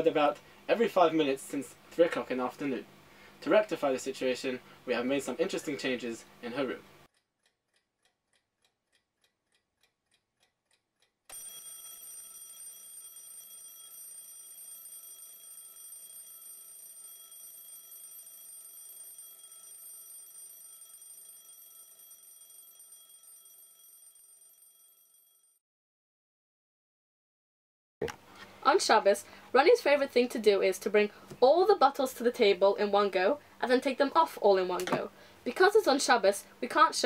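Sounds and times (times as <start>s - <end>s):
alarm clock ringing: 11.3s - 25.6s.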